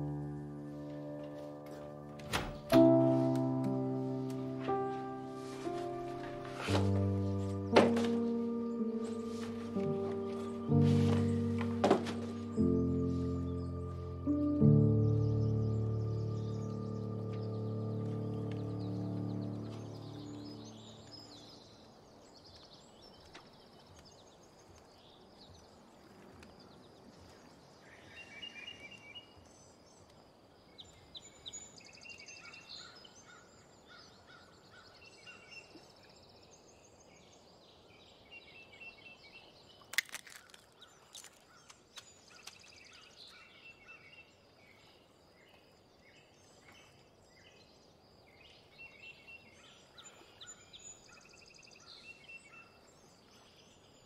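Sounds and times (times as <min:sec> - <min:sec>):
birds chirping: 0:00.0 - 0:24.6.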